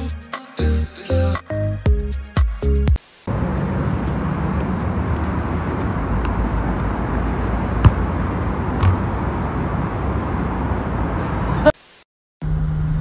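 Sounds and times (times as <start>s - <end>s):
city rumble: 3.3s - 11.8s
football kicked hard: 7.8s - 8.1s, 8.8s - 9.1s
ball thumping wall: 7.8s - 8.2s, 8.8s - 9.1s.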